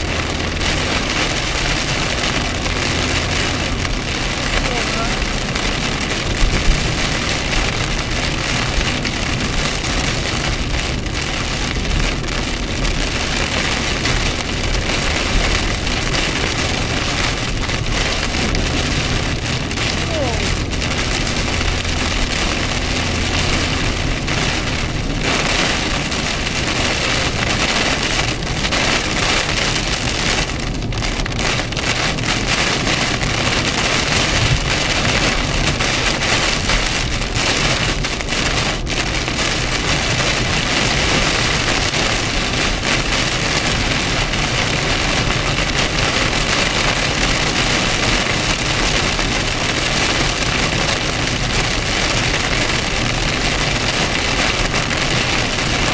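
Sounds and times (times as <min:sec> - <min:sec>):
heavy rain on car roof: 0:00.0 - 0:55.9.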